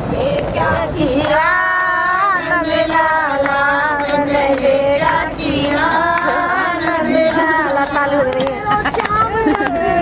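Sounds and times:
woman singing: 0.1 - 10.0.

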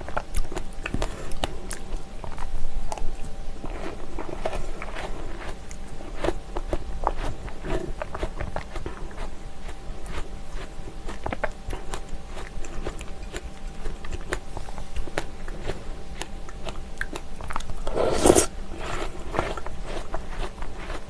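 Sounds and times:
close-up wet chewing: 0.0 - 21.0
spoon scraping glass bowl: 17.9 - 19.1.

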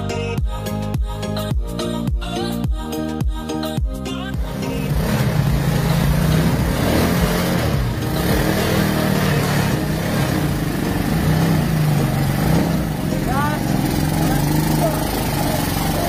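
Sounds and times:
atv engine running: 4.2 - 16.0.

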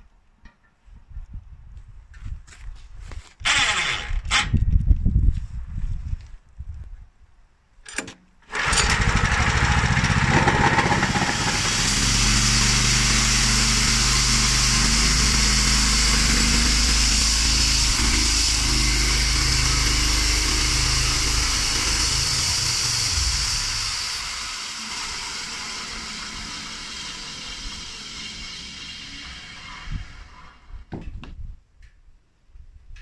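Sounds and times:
small engine running: 3.4 - 4.4, 8.5 - 30.7.

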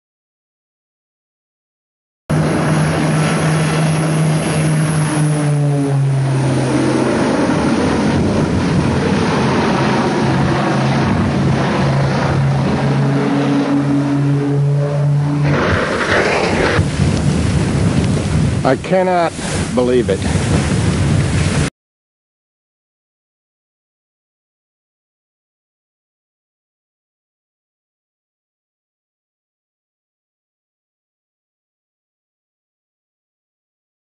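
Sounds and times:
plane crashing: 2.3 - 21.7
propeller aircraft engine drone: 2.3 - 21.7.

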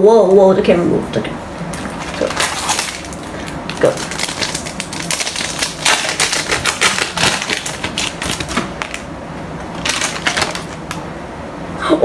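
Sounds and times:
trading cards clicking and rustling: 1.8 - 9.0, 9.8 - 11.0.

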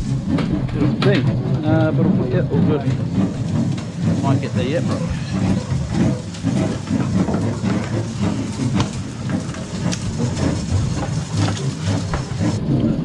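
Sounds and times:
low boat rumble: 0.0 - 13.0.

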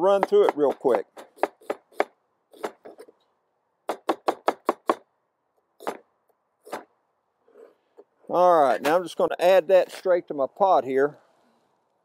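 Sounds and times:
cleaver chopping on plastic board: 0.1 - 3.0.

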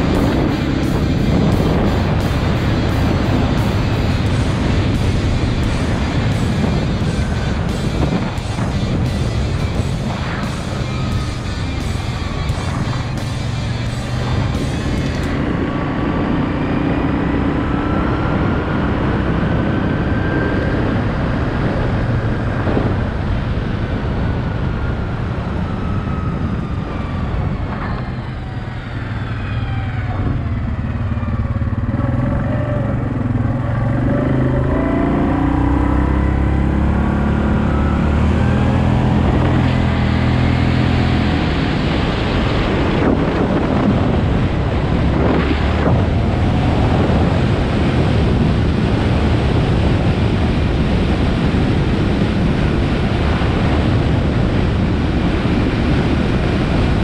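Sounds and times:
atv engine revving: 30.0 - 57.0.

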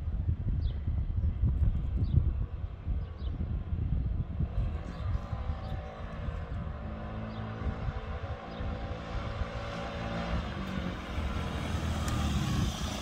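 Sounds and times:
scooter engine running: 4.8 - 13.0.

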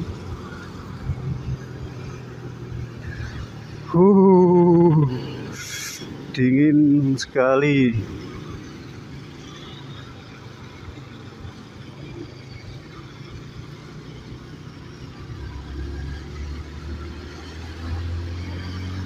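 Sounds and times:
deeper engine hum: 0.0 - 9.4
road and wind noise: 0.0 - 19.0.

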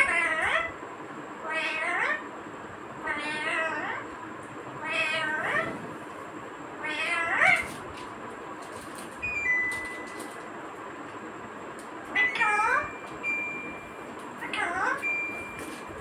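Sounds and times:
parakeet meow-like calls: 0.0 - 0.8, 1.4 - 2.3, 3.0 - 4.1, 4.8 - 5.8, 6.8 - 7.8, 12.1 - 12.9, 14.4 - 15.0.

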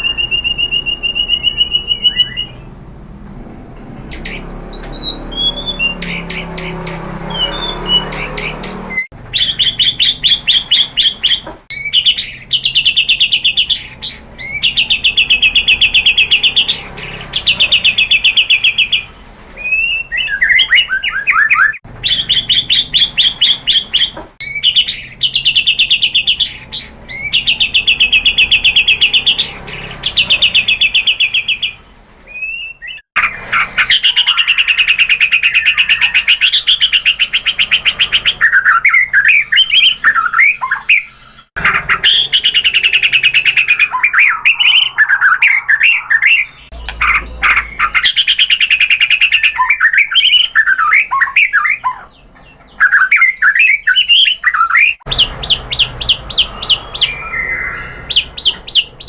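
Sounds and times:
bird singing trills: 0.0 - 2.8, 3.9 - 59.0.

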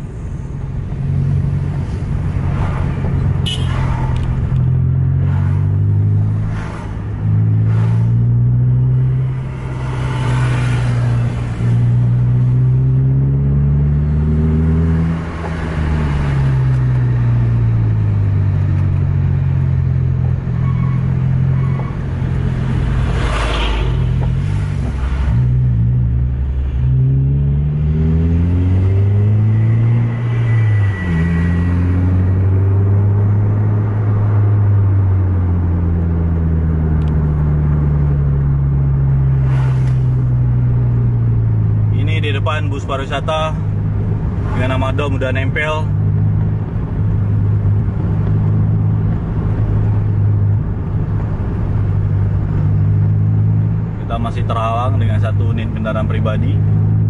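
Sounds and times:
lorries whooshing past: 21.2 - 26.9, 37.4 - 41.9.

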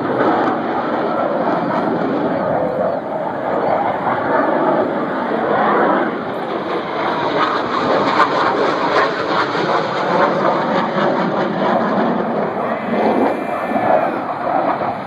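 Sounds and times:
jet aircraft flying overhead: 0.0 - 15.0.

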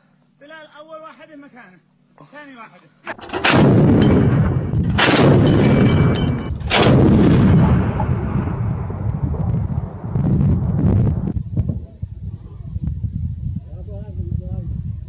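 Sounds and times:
cannon firing: 3.1 - 10.8
rolling rumble of echo: 3.1 - 11.5.

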